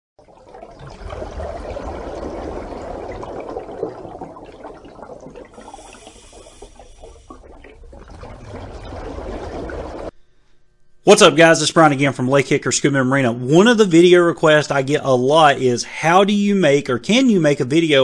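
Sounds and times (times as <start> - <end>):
water rushing and splashing: 0.2 - 10.1.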